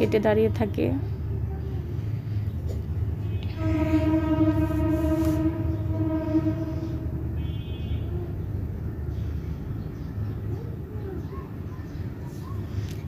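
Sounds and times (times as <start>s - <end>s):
train rumbling: 0.0s - 9.9s
higher-pitched horn tone: 3.4s - 8.2s
train horn: 3.4s - 8.2s.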